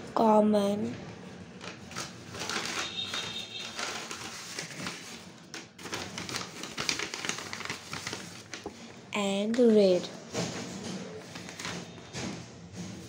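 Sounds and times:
paper rustling: 0:01.6 - 0:08.9, 0:11.2 - 0:12.0.

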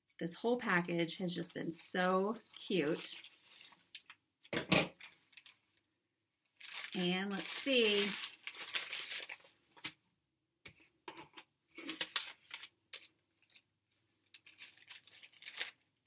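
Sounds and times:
paper rustling: 0:06.6 - 0:10.0, 0:11.8 - 0:13.6, 0:14.2 - 0:15.8.

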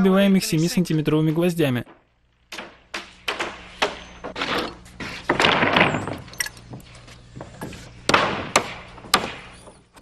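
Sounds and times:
hammer driving nails into wood: 0:01.9 - 0:06.4, 0:07.6 - 0:09.6.

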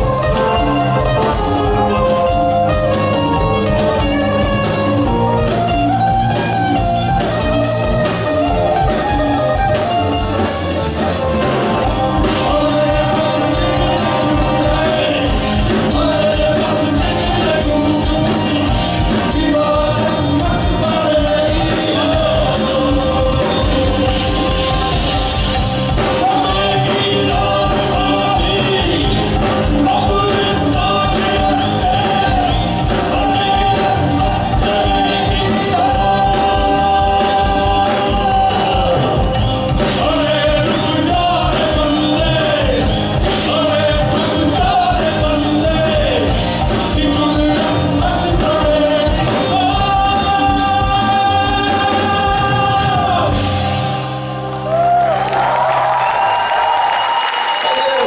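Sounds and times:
live rock band playing: 0:00.0 - 0:58.0
man singing long notes: 0:11.8 - 0:53.5
crowd cheering: 0:52.5 - 0:58.0.

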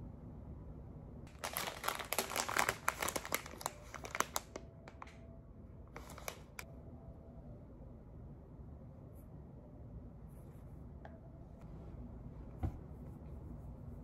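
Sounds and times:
crinkling crackles: 0:01.3 - 0:05.2, 0:05.9 - 0:06.6.

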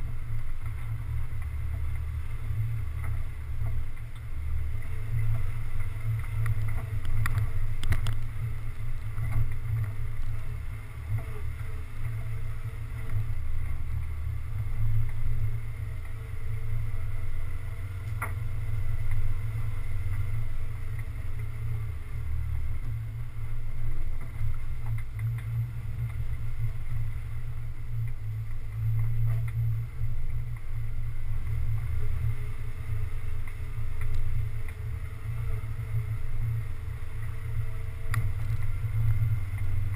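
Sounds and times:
muffled vehicle engine rumble: 0:00.0 - 0:39.9.

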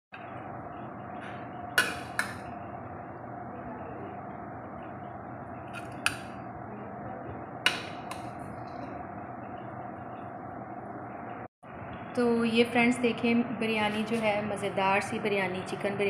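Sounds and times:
steady background hum: 0:00.1 - 0:16.0.

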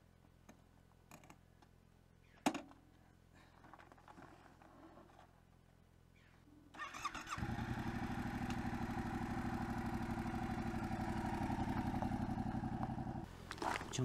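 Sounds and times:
motorcycle starter whine: 0:06.8 - 0:13.2
motorcycle engine running: 0:07.3 - 0:13.3.

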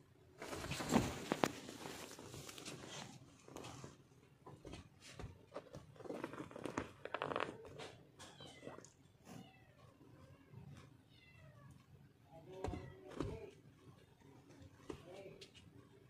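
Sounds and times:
cats scuffling on fabric: 0:00.2 - 0:08.6.

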